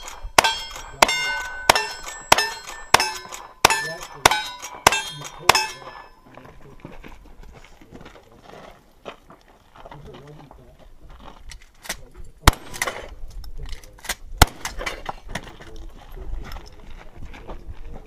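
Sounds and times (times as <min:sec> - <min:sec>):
steel plate target ringing: 0:00.0 - 0:06.3.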